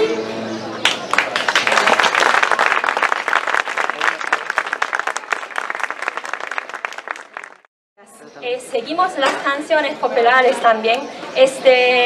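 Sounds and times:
audience applauding: 0.8s - 7.7s.

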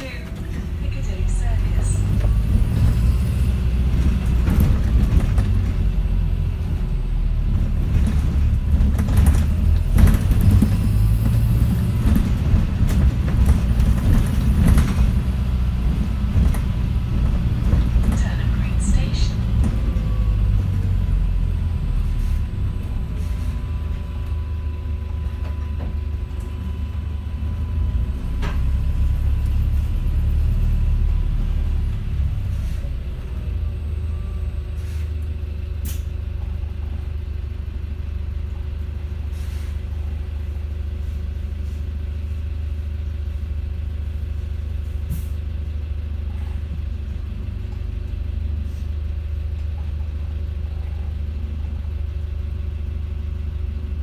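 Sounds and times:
bus drivetrain rumble: 0.0s - 54.0s.

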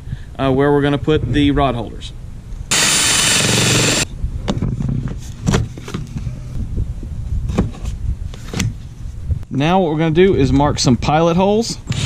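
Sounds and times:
drill with hole saw cutting: 2.7s - 4.1s.

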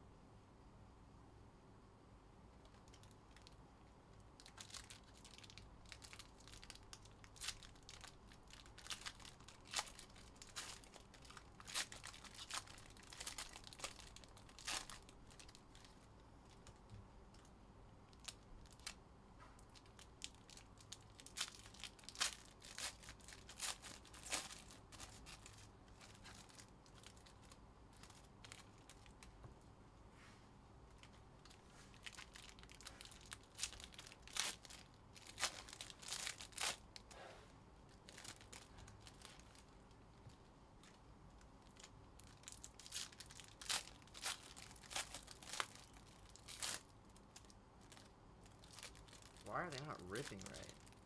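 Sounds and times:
foil wrappers crinkling: 4.4s - 16.8s, 19.6s - 29.3s, 31.0s - 37.1s, 37.9s - 41.0s, 41.6s - 51.0s.

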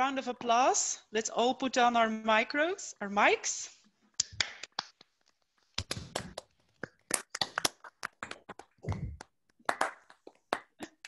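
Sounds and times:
people clapping: 5.8s - 11.0s
heavy thumps: 8.8s - 9.2s.

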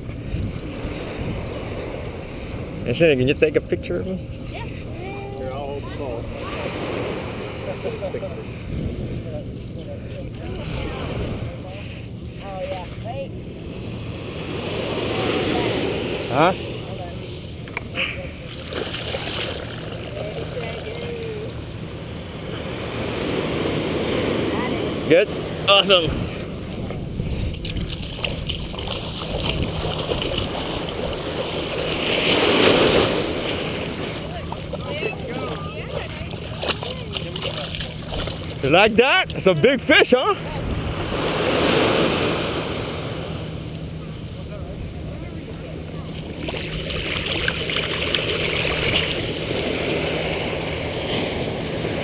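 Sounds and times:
ocean surf on beach: 0.0s - 11.9s, 12.6s - 45.2s, 45.8s - 52.0s
small splashes: 17.3s - 20.3s, 26.1s - 38.6s, 46.1s - 50.4s
wave breaking: 22.4s - 44.5s
surf washing over sand: 22.4s - 44.6s.

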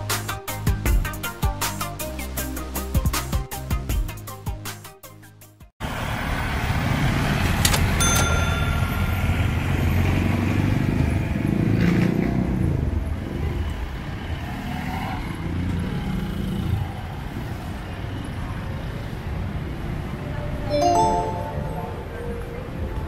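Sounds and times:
street traffic engines: 5.8s - 20.7s, 21.8s - 23.0s.

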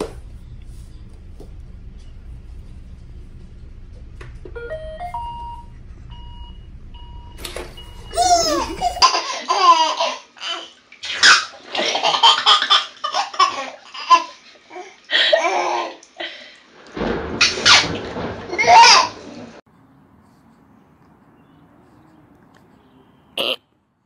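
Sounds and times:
baby laughing: 8.2s - 16.0s.

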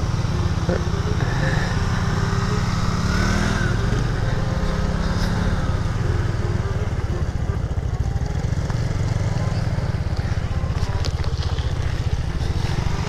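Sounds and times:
scooter engine running: 0.0s - 13.0s.

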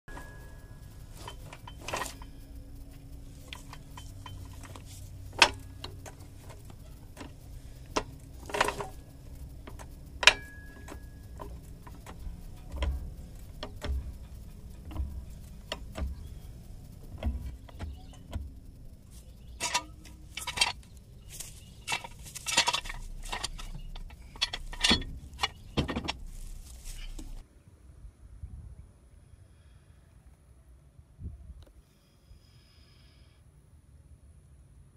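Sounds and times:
floor jack handle clanking: 0.1s - 27.4s.

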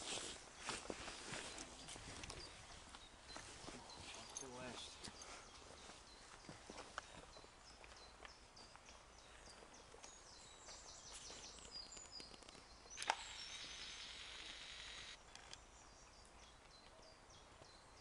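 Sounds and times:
small birds chirping: 0.1s - 18.0s
sharp click: 12.2s - 13.8s.

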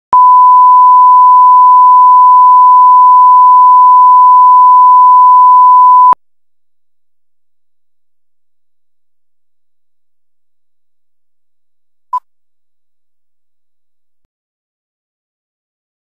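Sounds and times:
steady electronic beep: 2.1s - 6.2s.

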